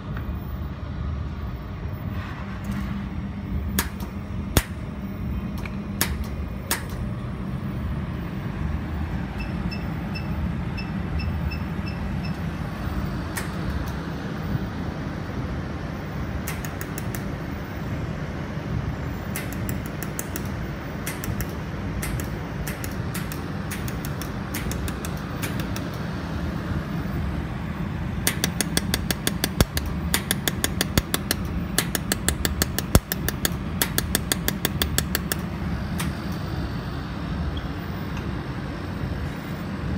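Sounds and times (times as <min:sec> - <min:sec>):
machine cooling hum: 0:00.0 - 0:39.9
laser welder snapping clicks: 0:03.7 - 0:04.8, 0:05.6 - 0:07.1, 0:13.3 - 0:14.0, 0:16.4 - 0:17.3, 0:19.3 - 0:26.0, 0:28.2 - 0:36.4.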